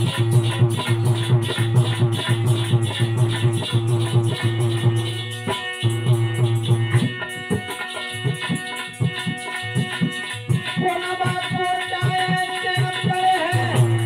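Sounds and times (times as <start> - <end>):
hand drum strokes: 0.0 - 14.0
harmonium melody: 0.0 - 14.0
jingling rattle percussion: 0.0 - 14.0.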